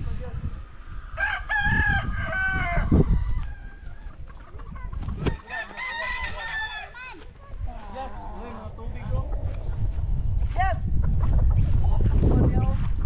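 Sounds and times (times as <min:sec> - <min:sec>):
rooster crowing: 0:01.1 - 0:04.0, 0:05.3 - 0:07.0
steady low rumble: 0:07.5 - 0:13.0.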